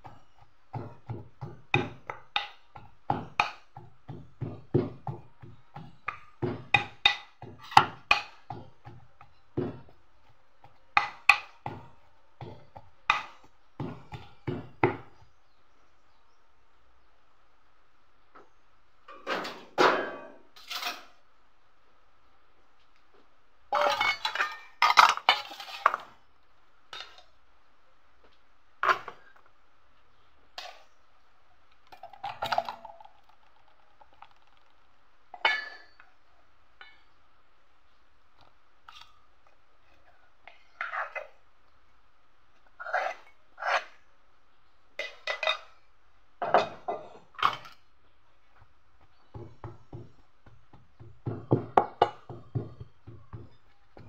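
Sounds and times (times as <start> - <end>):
pestle mashing in steel bowl: 0.0 - 15.2, 49.0 - 54.0
pot and bowl clanking: 35.4 - 36.0, 46.4 - 47.8, 51.0 - 54.0.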